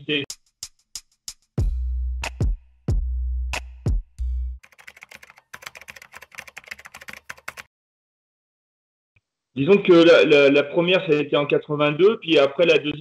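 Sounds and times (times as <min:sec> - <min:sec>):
electronic music with kick drum: 0:01.6 - 0:04.3
computer keyboard typing: 0:04.6 - 0:07.7.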